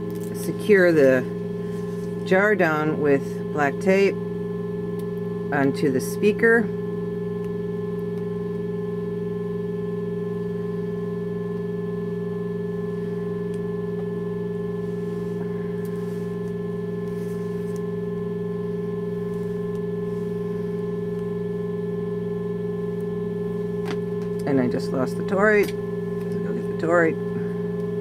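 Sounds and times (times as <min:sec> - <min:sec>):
steady electronic tones: 0:13.2 - 0:28.0.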